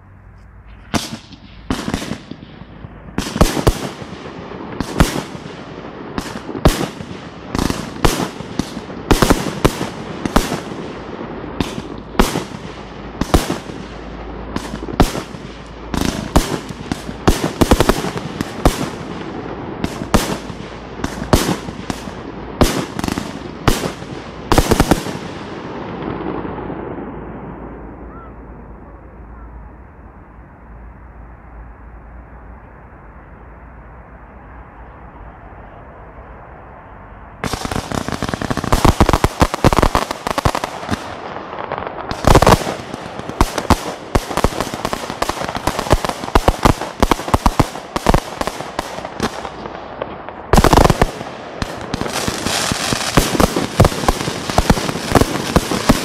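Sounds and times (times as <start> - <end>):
firework shells bursting: 37.4 - 56.0.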